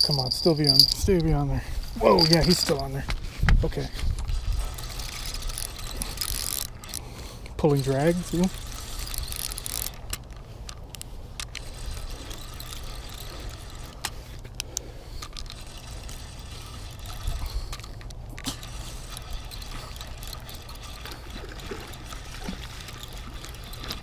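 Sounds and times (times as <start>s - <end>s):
water splashing and trickling: 18.6s - 24.0s.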